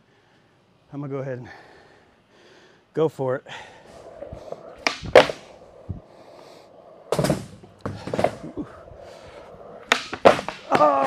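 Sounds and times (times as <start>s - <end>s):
skateboard wheels rolling on concrete: 3.6s - 11.0s
skateboard clacks: 4.0s - 6.1s, 6.7s - 11.0s.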